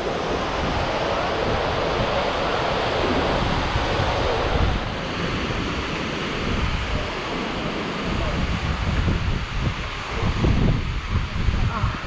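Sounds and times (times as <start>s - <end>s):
waterfall roaring: 0.0s - 12.0s
wind rumbling on microphone: 0.0s - 12.0s.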